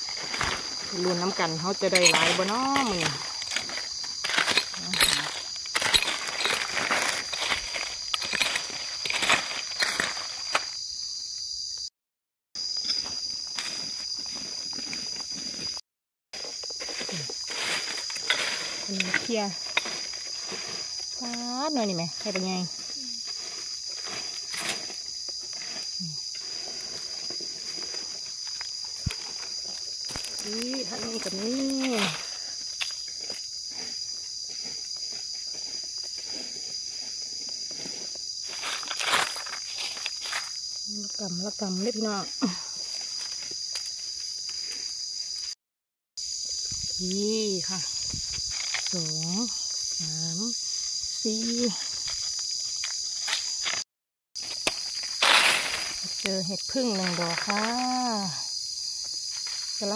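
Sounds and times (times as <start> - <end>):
footsteps on dry leaves and gravel: 0.0 - 10.8, 12.6 - 21.2, 22.0 - 40.8, 54.4 - 56.2
rustling of leaves: 0.0 - 10.9, 16.4 - 45.5, 54.4 - 59.9
insects droning: 0.0 - 11.9, 12.6 - 15.8, 16.4 - 45.6, 46.2 - 53.8, 54.4 - 59.9.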